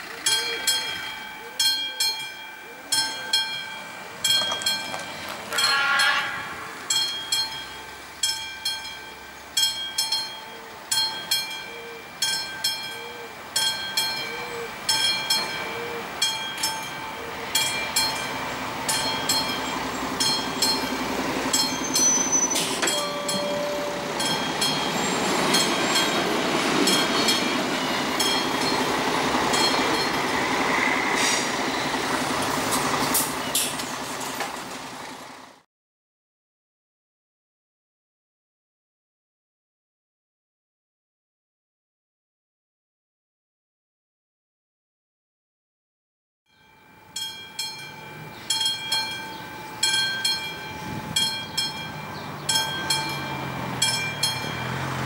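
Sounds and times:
level crossing warning bell: 0:00.0 - 0:33.6, 0:46.5 - 0:55.0
train rumbling over crossing: 0:00.0 - 0:35.6, 0:46.6 - 0:55.0.

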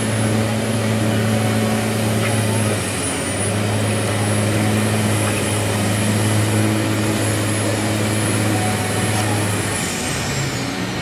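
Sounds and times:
diesel truck engine droning: 0:00.0 - 0:11.0.

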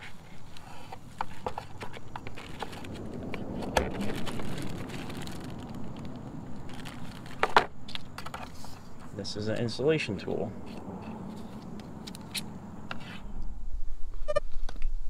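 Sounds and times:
packaging rustling: 0:01.3 - 0:08.6.

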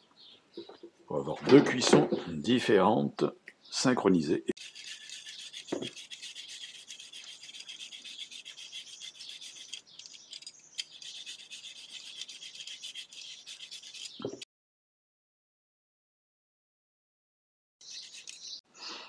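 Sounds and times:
peeler scraping sweet potato: 0:04.6 - 0:14.4, 0:17.8 - 0:18.6.

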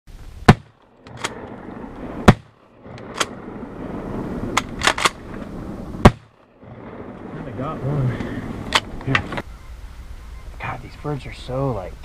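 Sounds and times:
shotgun blasts: 0:00.4 - 0:01.3, 0:02.2 - 0:03.3, 0:06.0 - 0:06.4.

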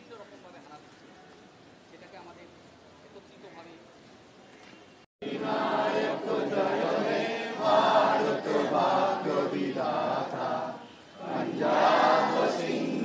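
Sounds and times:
children singing in unison: 0:05.2 - 0:13.0.

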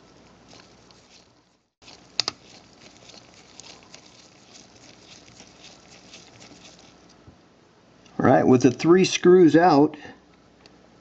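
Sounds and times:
screwdriver ticking and scratching: 0:00.0 - 0:07.2.

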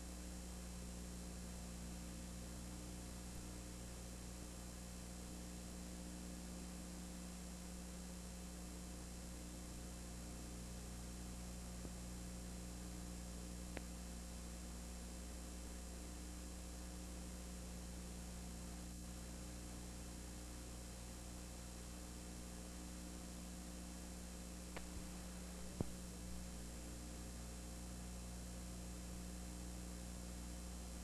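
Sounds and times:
electrical hum and hiss: 0:00.0 - 0:31.0
faint clicks: 0:13.7 - 0:14.0, 0:24.7 - 0:26.0.

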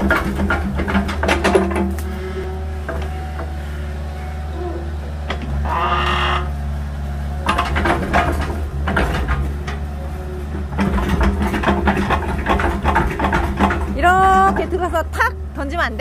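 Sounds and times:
machine clanks and knocks: 0:00.0 - 0:02.1, 0:02.8 - 0:03.6, 0:07.4 - 0:16.0
diesel engine running: 0:00.0 - 0:16.0.

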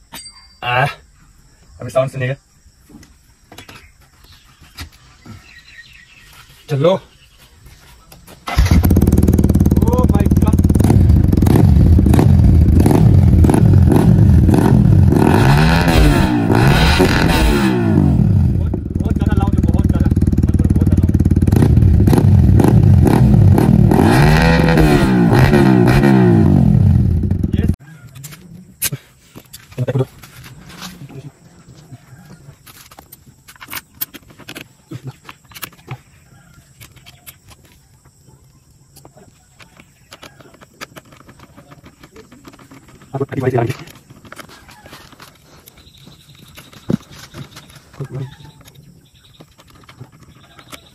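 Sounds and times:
motorcycle engine revving: 0:08.4 - 0:27.8.

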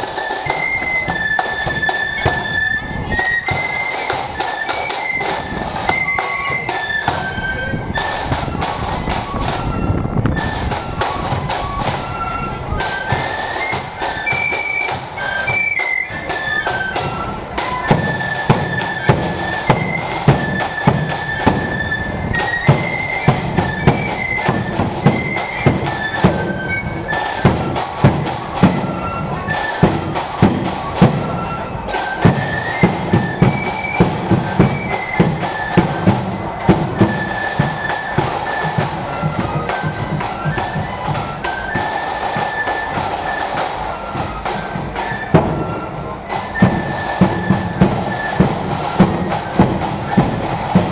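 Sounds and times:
flute melody: 0:00.0 - 0:50.9
snare drum: 0:00.0 - 0:50.9
bass drum march beat: 0:16.2 - 0:50.9.

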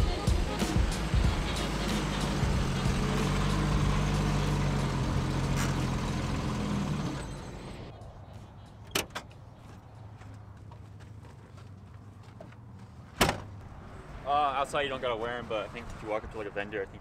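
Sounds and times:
car engine running: 0:00.0 - 0:07.9.

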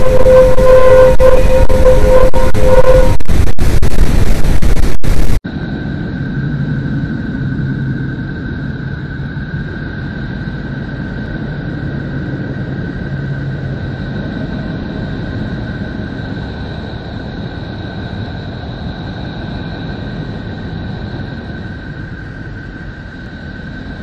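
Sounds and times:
high whistling tones: 0:00.0 - 0:03.6
low drone: 0:00.0 - 0:24.0.

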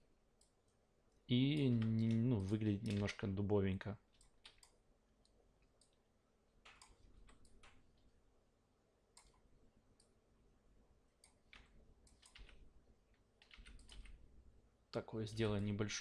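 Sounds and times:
computer mouse and keyboard clicking: 0:01.5 - 0:03.2, 0:04.1 - 0:06.0, 0:06.6 - 0:07.8, 0:09.2 - 0:09.4, 0:11.2 - 0:12.6, 0:13.4 - 0:14.2.

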